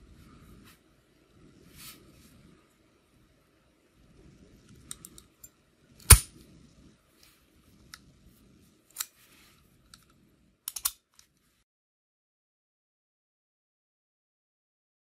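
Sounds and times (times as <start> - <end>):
padlock shackle springing open: 10.7 - 11.1
small metal clicks and taps: 10.7 - 11.3.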